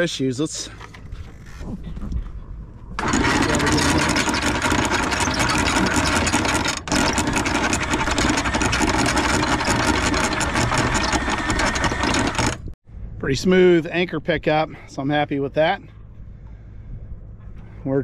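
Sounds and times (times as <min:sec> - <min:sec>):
anchor windlass motor hauling chain: 0:03.0 - 0:12.8.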